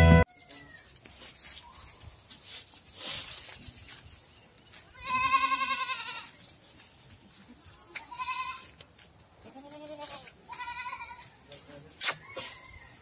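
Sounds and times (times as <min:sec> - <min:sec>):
goats bleating: 0:04.9 - 0:06.4, 0:07.6 - 0:08.8, 0:09.4 - 0:11.4.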